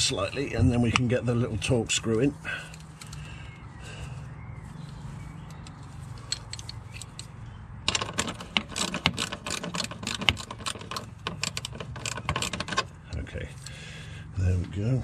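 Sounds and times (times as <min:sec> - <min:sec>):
hand ratchet clicking: 0:06.3 - 0:12.9.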